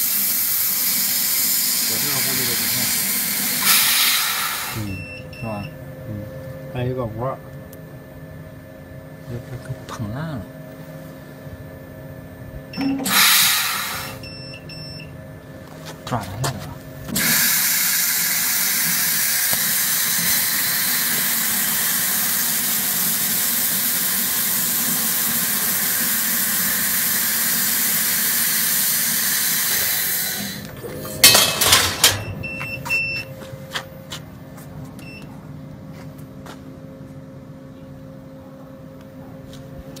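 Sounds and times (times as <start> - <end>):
gas hissing from nozzle: 0.0 - 4.9, 13.0 - 14.2, 17.2 - 30.7
low machine hum: 0.0 - 40.0.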